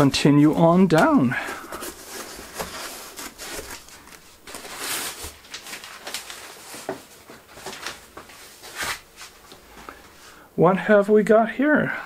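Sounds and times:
foam packing rustling: 0.0 - 9.5.

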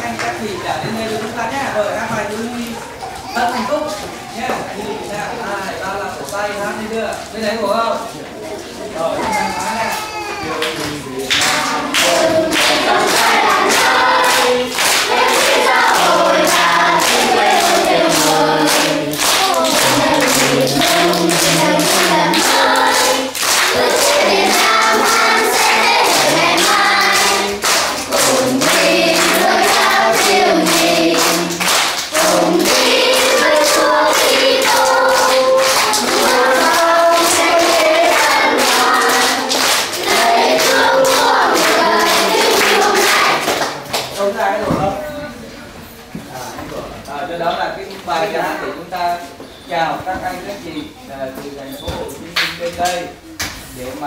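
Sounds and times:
children singing: 9.2 - 43.8
hands clapping in steady beat: 10.6 - 44.4, 52.4 - 53.6.

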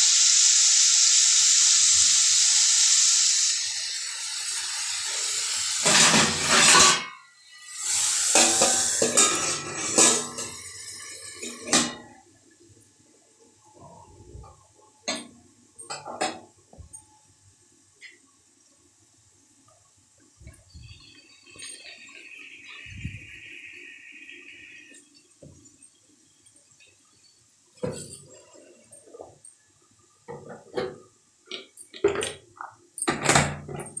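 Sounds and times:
metal lid clattering on pan: 5.8 - 7.2, 8.3 - 10.6.

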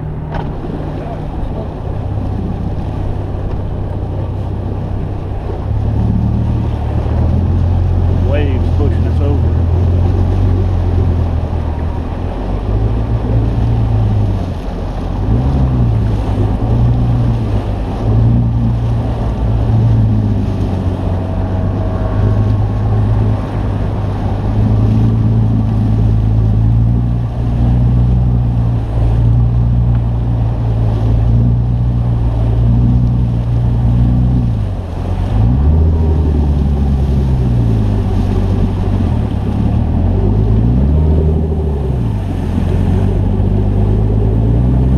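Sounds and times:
outboard motor running: 0.0 - 44.9
water noise: 0.0 - 44.9
wind: 0.0 - 44.9.

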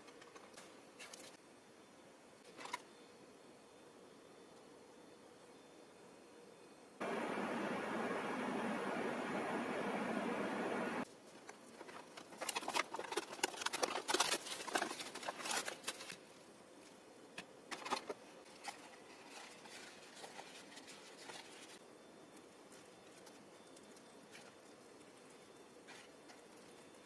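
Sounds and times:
microwave oven hum: 7.0 - 11.0
plastic film crinkling: 11.8 - 16.3.

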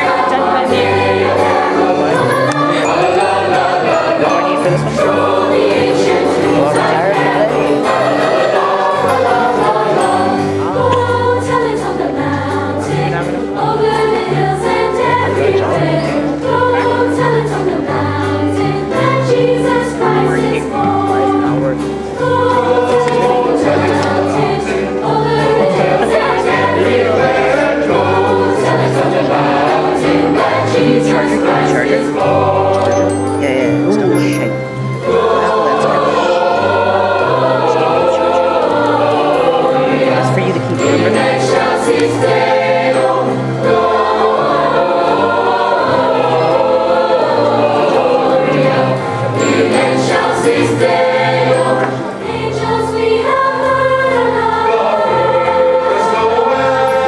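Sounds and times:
choir singing: 0.0 - 57.0.

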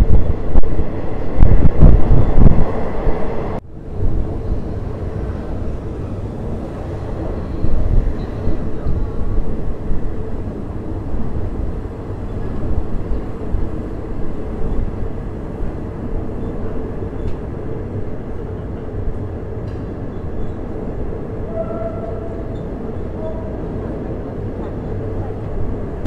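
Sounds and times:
train wheels rumbling: 0.0 - 26.0.

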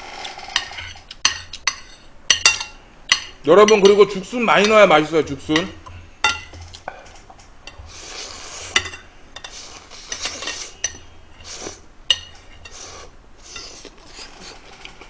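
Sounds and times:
metal spoon scraping ceramic plate: 0.5 - 2.7
eating and slurping: 7.8 - 8.8, 9.4 - 11.8, 12.6 - 15.0.

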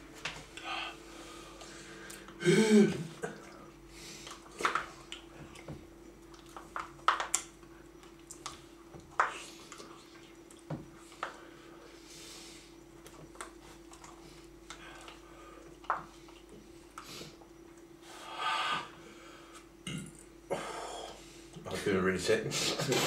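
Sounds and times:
faint steady hum: 0.0 - 23.0
person grunting: 2.4 - 3.1.

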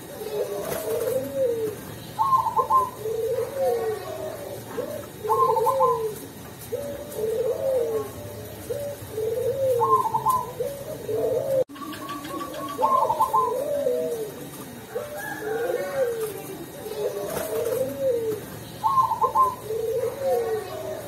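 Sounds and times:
dove cooing: 0.0 - 21.0.

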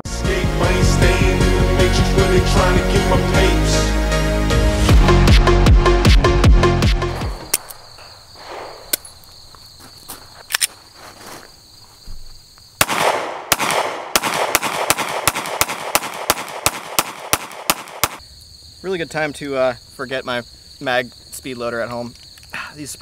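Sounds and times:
pistol shots: 12.8 - 18.2.

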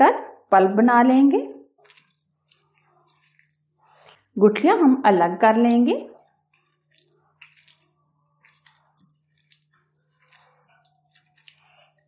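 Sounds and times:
wet squelches of pulp squeezed: 6.2 - 12.0.

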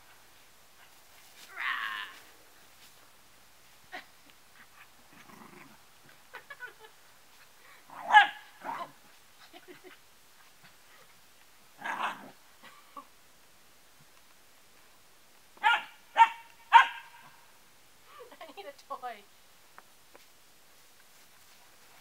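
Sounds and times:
dog barking: 8.1 - 8.4, 15.6 - 17.3.

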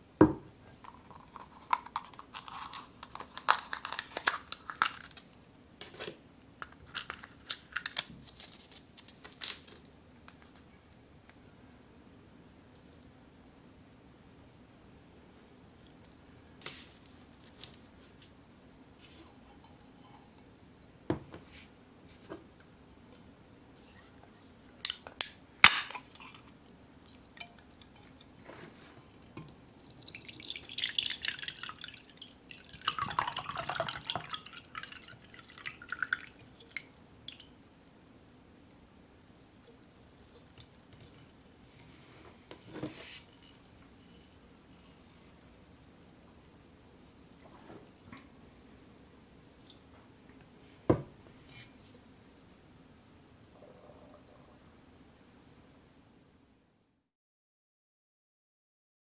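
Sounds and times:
drink can cracked open: 24.9 - 26.2
juice pouring into glass mug: 29.3 - 42.0.

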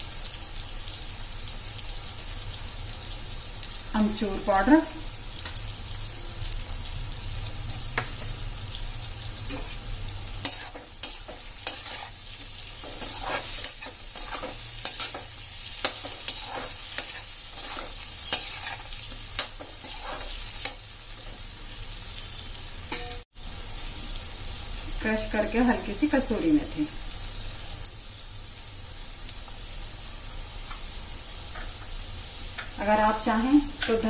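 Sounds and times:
vegetables sizzling in a pan: 0.0 - 34.0
metal spatula scraping a pan: 10.4 - 21.4, 22.9 - 23.2.

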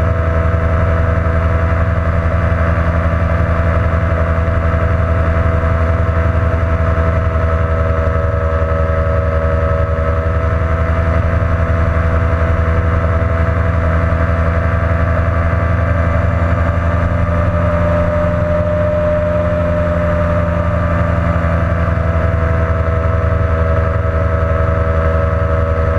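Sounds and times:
aircraft engine and propeller droning: 0.0 - 25.9.

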